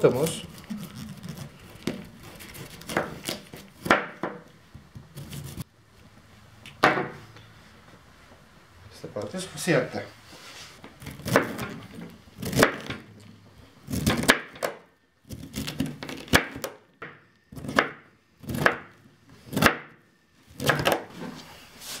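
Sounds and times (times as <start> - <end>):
knife chopping cauliflower: 11.0 - 13.0, 13.9 - 16.8, 17.5 - 21.1.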